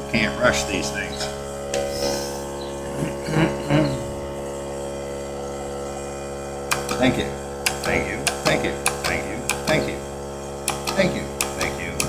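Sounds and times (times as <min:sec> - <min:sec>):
steady hum: 0:00.0 - 0:12.0
voice murmuring: 0:02.9 - 0:04.2.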